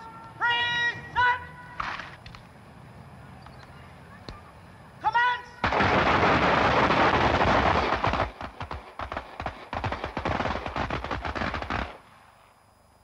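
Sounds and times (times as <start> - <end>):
rapid gunfire: 5.6 - 12.0.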